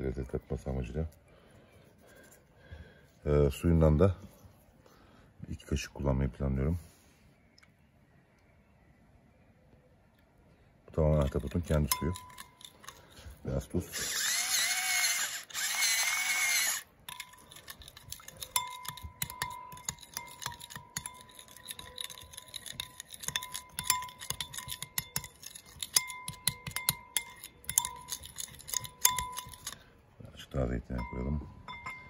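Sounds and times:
spoon stirring sauce in bowl: 0:11.0 - 0:15.0, 0:15.6 - 0:29.9
spoon clinking against bowl: 0:11.1 - 0:13.2, 0:17.0 - 0:29.8, 0:31.0 - 0:32.0
salt mill grinding: 0:11.1 - 0:29.8.

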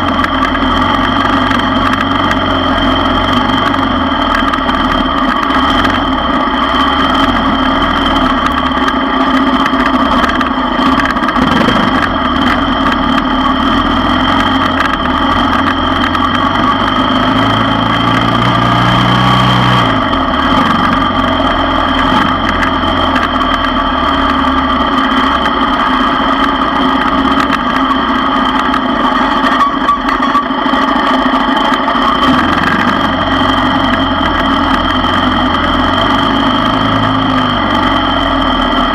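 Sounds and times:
atv engine running: 0:00.0 - 0:38.9.

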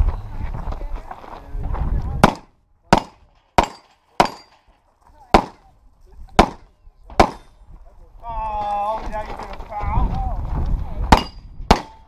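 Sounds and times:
pistol shots: 0:02.2 - 0:04.6, 0:05.3 - 0:05.6, 0:06.4 - 0:07.5, 0:11.1 - 0:12.0.

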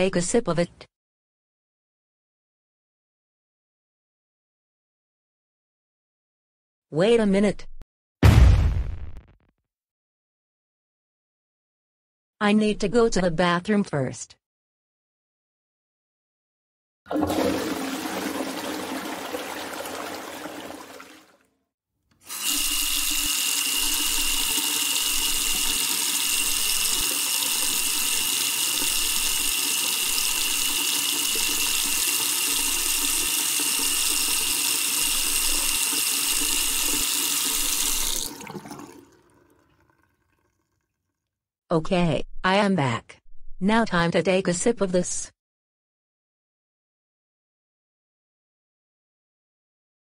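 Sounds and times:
toilet flushing: 0:17.1 - 0:21.4, 0:22.2 - 0:40.5
water running steadily: 0:17.1 - 0:21.4, 0:22.2 - 0:40.4.

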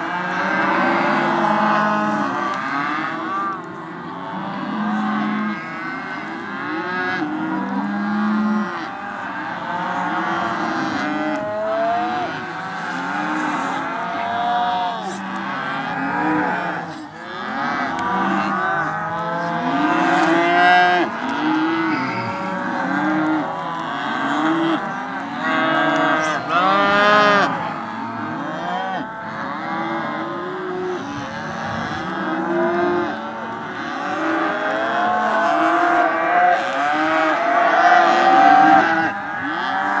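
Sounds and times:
calves bawling: 0:08.7 - 0:27.5.

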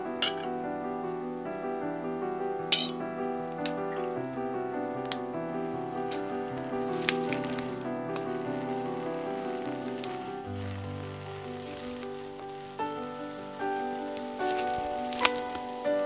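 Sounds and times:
slow background music: 0:00.0 - 0:16.0
batter sizzling in a pan: 0:06.1 - 0:16.0.

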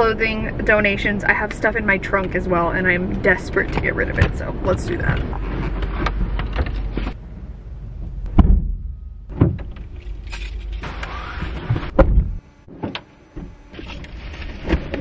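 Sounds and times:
outside background noise: 0:00.0 - 0:15.0
car doors shutting: 0:08.0 - 0:15.0.

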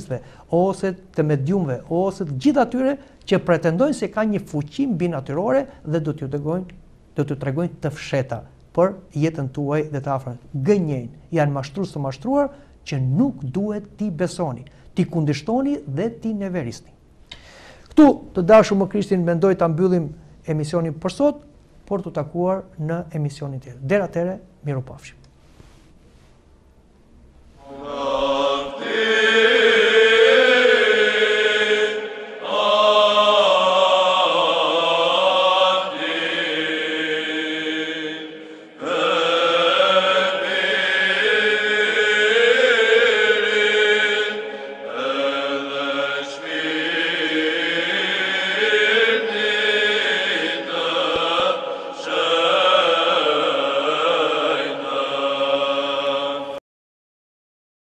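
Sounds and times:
church chant: 0:27.6 - 0:56.6.

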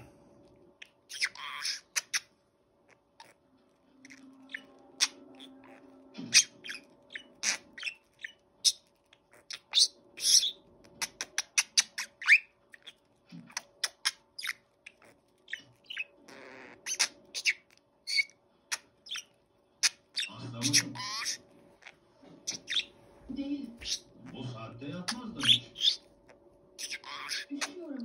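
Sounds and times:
budgerigar chattering: 0:01.1 - 0:02.2, 0:09.4 - 0:18.3, 0:19.0 - 0:22.9, 0:23.7 - 0:26.1, 0:26.8 - 0:28.0.

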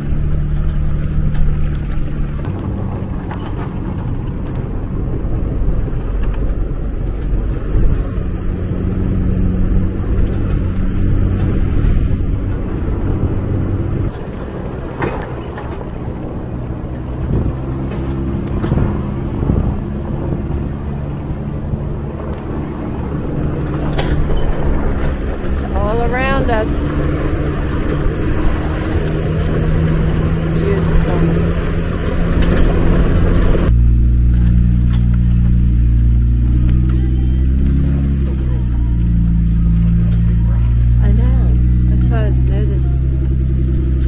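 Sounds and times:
vehicle knocks and rattles: 0:00.0 - 0:38.7
off-road vehicle engine rumble: 0:00.0 - 0:44.0.

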